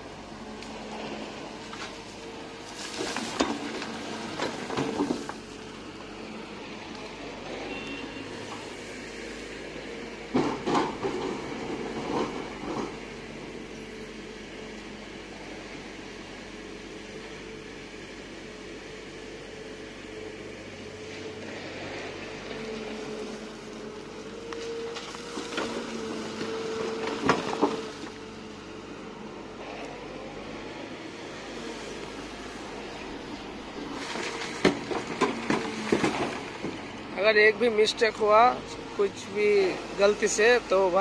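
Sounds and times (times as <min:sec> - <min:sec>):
excavator engine running: 0:00.0 - 0:41.0
dirt and stones dropping into truck: 0:02.6 - 0:05.5, 0:24.6 - 0:28.2, 0:33.6 - 0:37.0.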